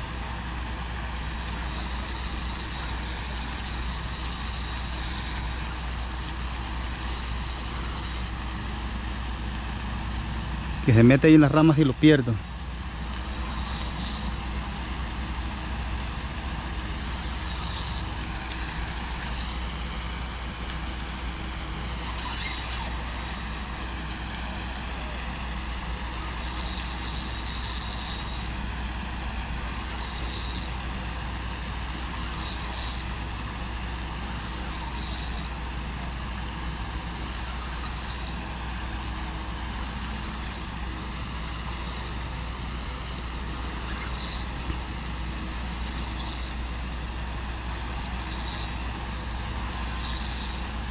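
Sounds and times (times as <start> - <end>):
fishing reel hissing: 1.0 - 8.3, 13.1 - 14.5, 17.1 - 19.8, 21.8 - 23.8, 26.2 - 28.6, 29.8 - 30.8, 32.2 - 33.1, 34.5 - 35.6, 37.4 - 38.6, 40.2 - 40.8, 41.8 - 42.3, 43.6 - 44.6, 45.8 - 46.6, 48.0 - 48.8, 49.8 - 50.9.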